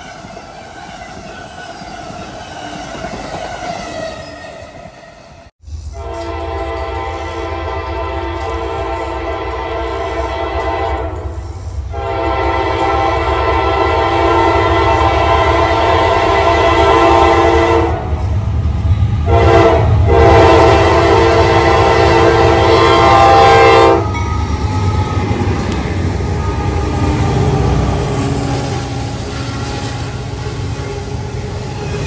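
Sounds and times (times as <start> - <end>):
train wheels on rail: 0.0 - 32.0
locomotive air horn blasts: 5.9 - 18.2, 18.9 - 31.6.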